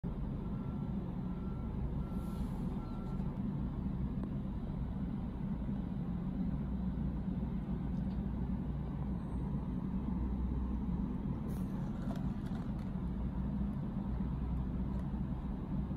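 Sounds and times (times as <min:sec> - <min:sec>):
low background rumble: 0:00.0 - 0:15.9
faint short beeps: 0:00.5 - 0:03.3.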